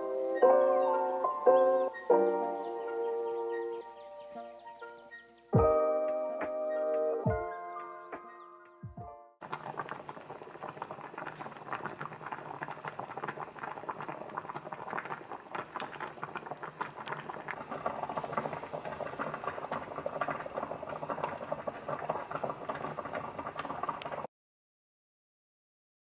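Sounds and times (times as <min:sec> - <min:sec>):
water boiling and bubbling: 0:09.4 - 0:24.3.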